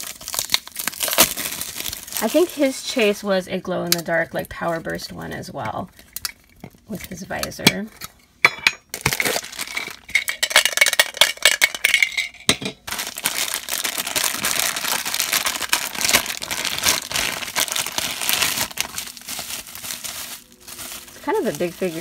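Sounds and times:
plastic bag crinkling: 0.0s - 3.2s, 8.9s - 12.0s, 12.8s - 22.0s.

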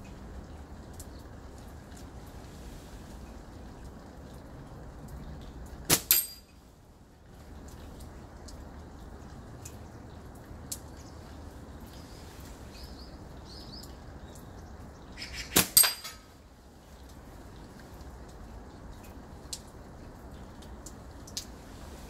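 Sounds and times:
ringing crack: 5.9s - 6.5s, 15.6s - 16.3s.

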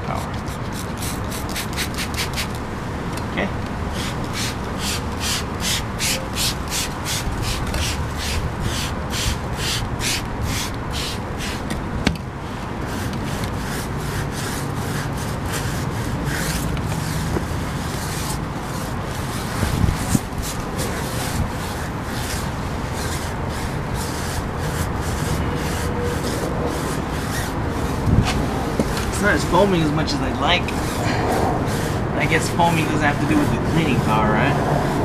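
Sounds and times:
brush scrubbing rubber: 0.0s - 2.6s, 3.9s - 11.7s, 12.8s - 35.0s.

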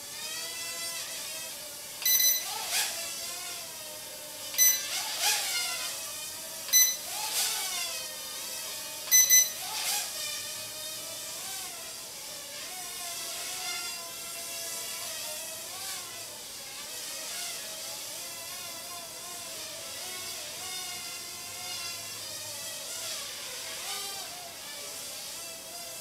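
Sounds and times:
quadcopter motor whine: 0.0s - 26.0s
short electronic beeps: 2.0s - 2.5s, 4.6s - 4.9s, 6.7s - 7.1s, 9.1s - 9.6s.

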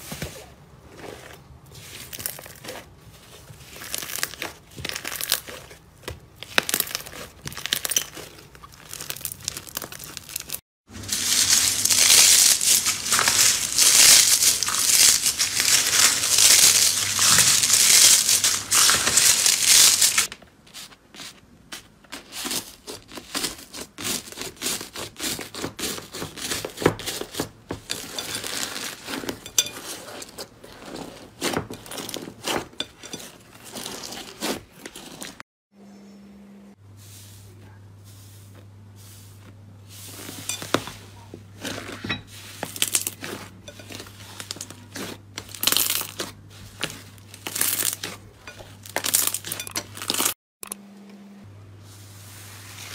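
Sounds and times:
crinkling shredded flakes: 0.9s - 35.4s, 37.1s - 50.4s
slime squeezing sticky crackles: 6.4s - 20.3s.

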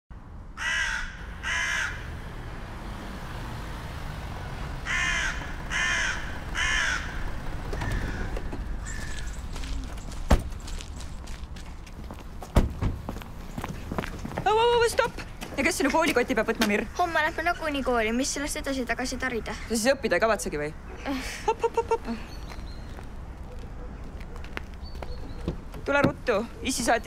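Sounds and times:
crows cawing: 0.6s - 2.2s, 4.8s - 9.8s, 19.2s - 19.8s.

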